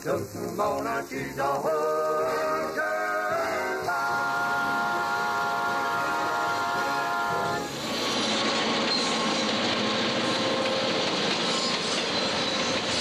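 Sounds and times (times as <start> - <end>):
passenger train passing: 0.0 - 13.0
wheels rattling over rail joints: 0.0 - 13.0
held chord of tones: 0.1 - 7.8.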